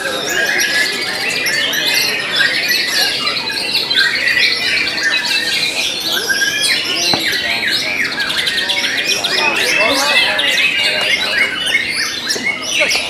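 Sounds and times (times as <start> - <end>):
birds singing in chorus: 0.0 - 13.0.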